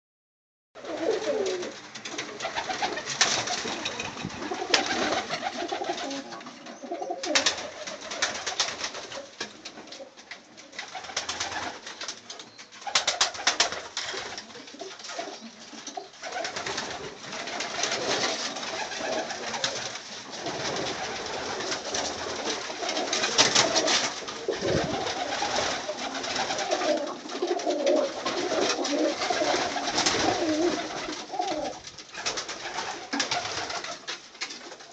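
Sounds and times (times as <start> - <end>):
pigeons cooing: 0.8 - 8.3, 17.7 - 31.8
wings flapping: 0.8 - 34.9.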